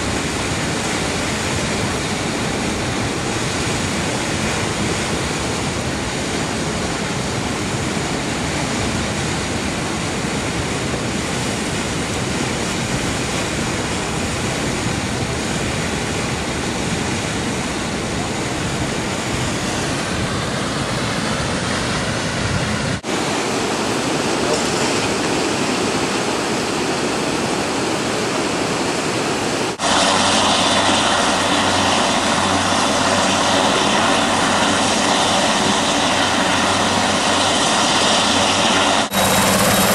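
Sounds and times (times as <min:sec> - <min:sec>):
floodwater rushing: 0:00.0 - 0:39.9
helicopter engine drone: 0:00.0 - 0:39.9.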